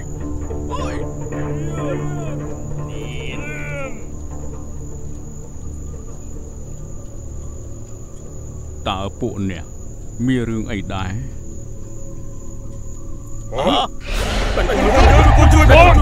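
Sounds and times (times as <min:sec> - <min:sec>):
crickets trilling: 0:00.0 - 0:16.0
low drone: 0:14.0 - 0:16.0.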